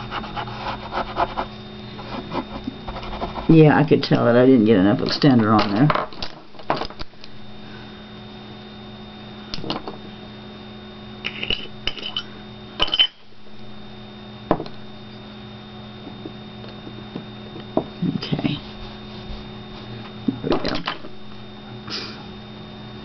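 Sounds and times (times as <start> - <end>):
low electrical hum: 0.0 - 23.0.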